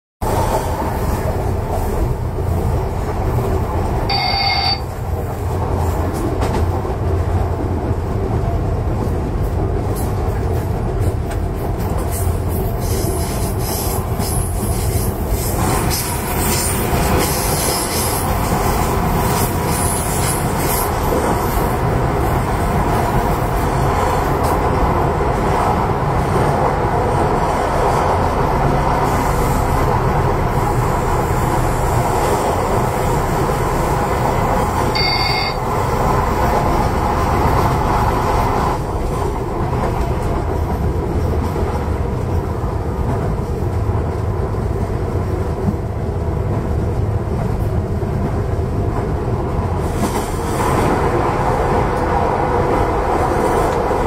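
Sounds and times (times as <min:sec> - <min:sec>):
train wheels rumbling on rails: 0:00.2 - 0:54.0
brief high tone: 0:04.1 - 0:04.9, 0:34.9 - 0:35.7.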